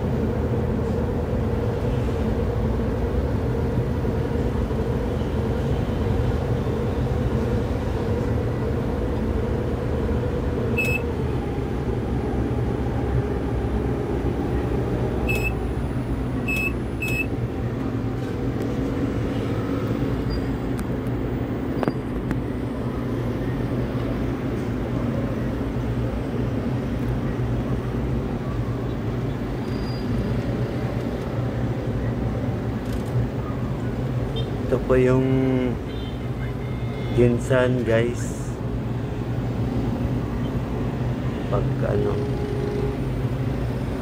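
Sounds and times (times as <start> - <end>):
crane low rumble: 0.0 - 34.3
short high electronic beeps: 10.8 - 11.0, 15.3 - 15.6, 16.5 - 17.3.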